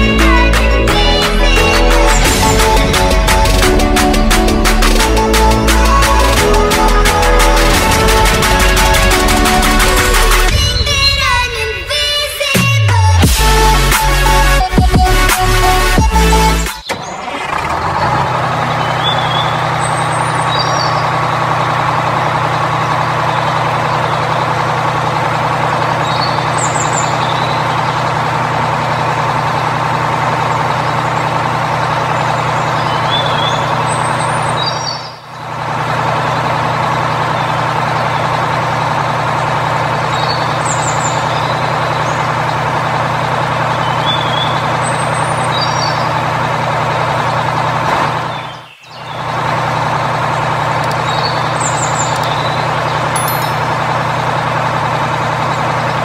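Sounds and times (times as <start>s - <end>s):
diesel truck engine idling: 0.0s - 56.0s
short high chirps: 53.2s - 53.9s.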